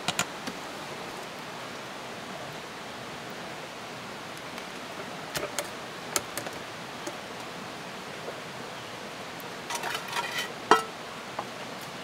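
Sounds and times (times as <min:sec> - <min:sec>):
steady hiss: 0:00.0 - 0:12.0
metal pot and lid clattering: 0:09.7 - 0:10.9.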